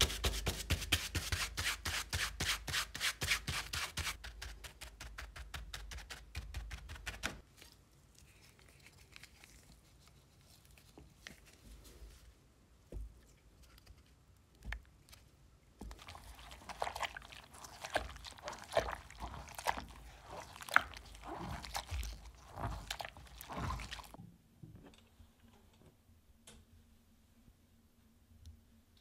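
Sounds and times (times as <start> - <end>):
cloth squelching in soapy water: 15.8 - 24.2.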